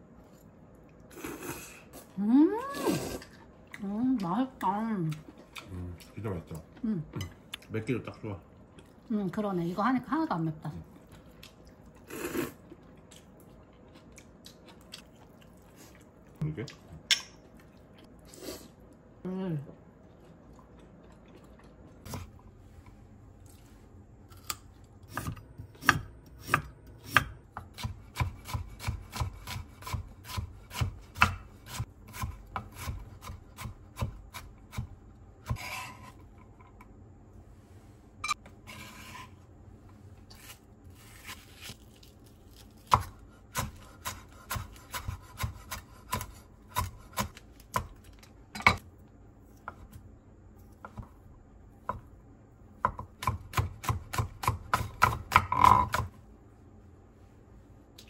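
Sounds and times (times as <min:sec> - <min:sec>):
knife chopping on cutting board: 0:25.1 - 0:36.0, 0:42.9 - 0:47.9, 0:52.8 - 0:56.1
knife scraping board: 0:35.5 - 0:36.2, 0:38.3 - 0:39.4.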